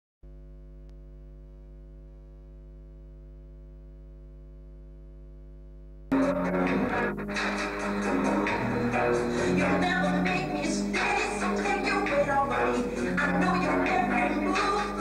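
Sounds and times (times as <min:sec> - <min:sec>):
steady electrical hum: 0:00.3 - 0:15.0
music: 0:06.1 - 0:15.0.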